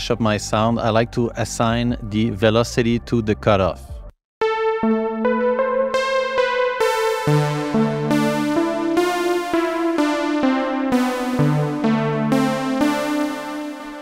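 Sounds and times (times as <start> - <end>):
synth bass line: 4.4 - 14.0
synth chords: 4.4 - 14.0.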